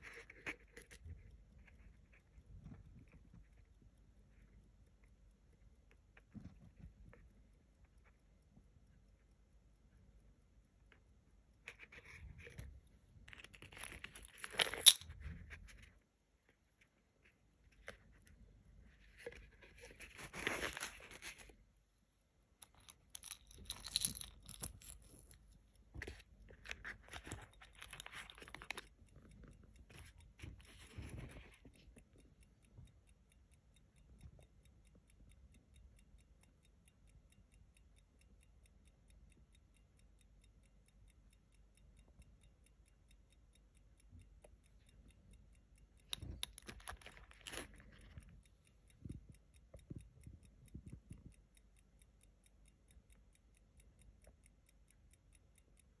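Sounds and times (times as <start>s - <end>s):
pocket watch ticking: 0.0s - 56.0s
rustling handling noises: 19.1s - 21.6s.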